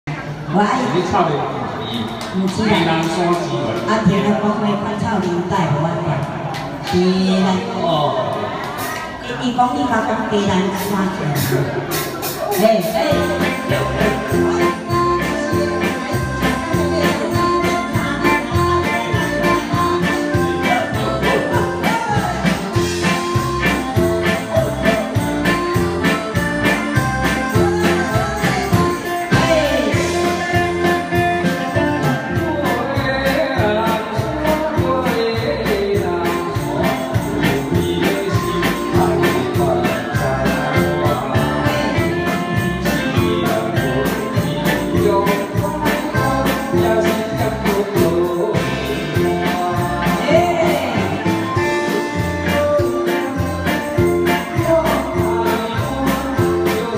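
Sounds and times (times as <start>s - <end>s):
live band playing: 0.1s - 56.9s
person singing into microphone: 12.3s - 56.9s.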